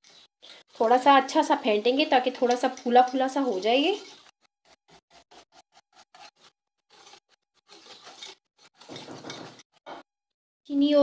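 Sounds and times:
utensil scraping bowl: 0:02.2 - 0:10.1.

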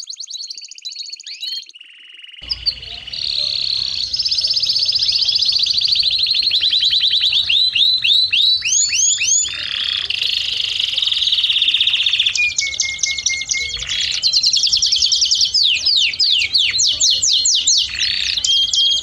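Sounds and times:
canary singing trills: 0:00.0 - 0:19.0.

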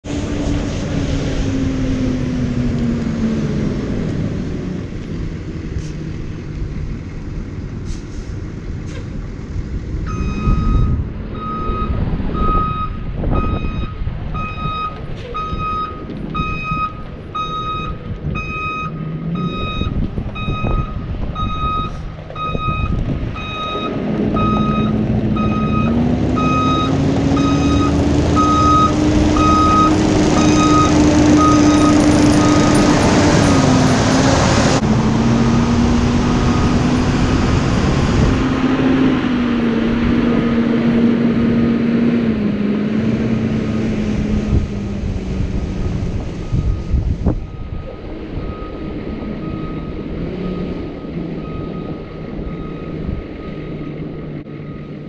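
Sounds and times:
bus engine running: 0:00.0 - 0:55.0
backup beeper: 0:10.1 - 0:33.8.

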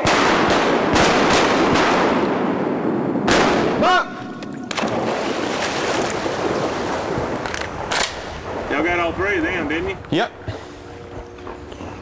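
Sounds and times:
shotgun shots echoing: 0:00.0 - 0:05.4.

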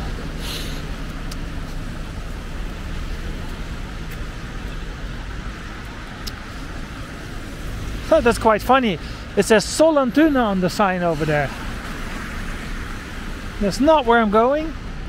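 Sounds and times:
road traffic rumble: 0:00.0 - 0:15.0
tyre hiss: 0:00.4 - 0:01.0.

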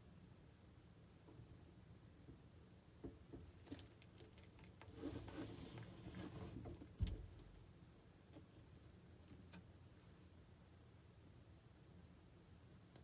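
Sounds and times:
lizard chewing salad: 0:03.6 - 0:06.4.

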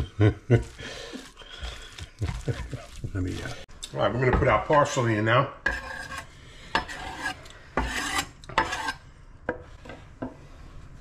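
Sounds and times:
knife scraping wooden cutting board: 0:05.6 - 0:09.0.

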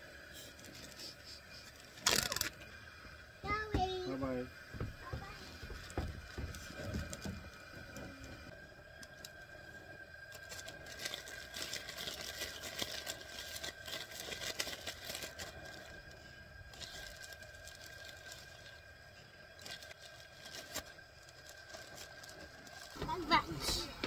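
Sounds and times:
plastic bag crinkling: 0:01.7 - 0:02.6, 0:10.2 - 0:24.0.

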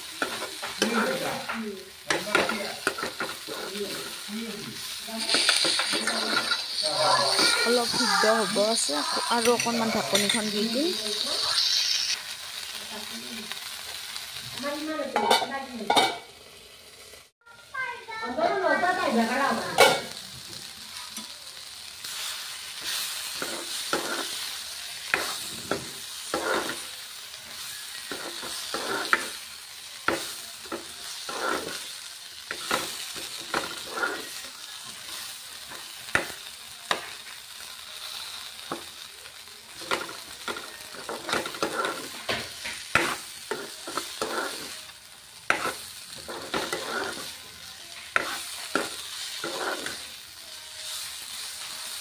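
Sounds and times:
vegetables sizzling in a wok: 0:00.0 - 0:52.0
metal ladle scraping a pan: 0:05.2 - 0:12.2, 0:25.1 - 0:26.8, 0:32.6 - 0:34.4, 0:41.0 - 0:44.8, 0:45.5 - 0:47.4, 0:48.1 - 0:50.0.

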